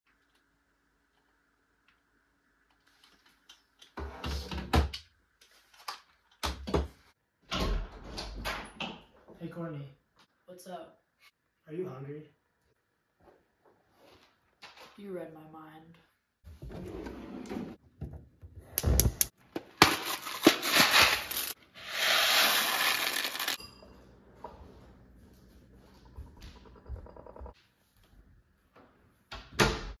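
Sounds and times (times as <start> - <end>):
dry pasta pouring into a pot: 20.1 - 23.6.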